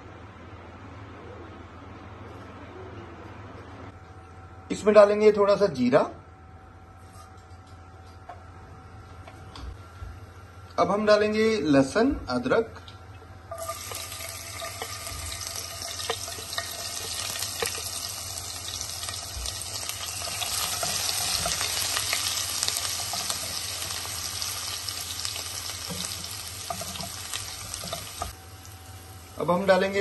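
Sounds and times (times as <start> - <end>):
garlic sizzling in hot oil: 13.5 - 30.0.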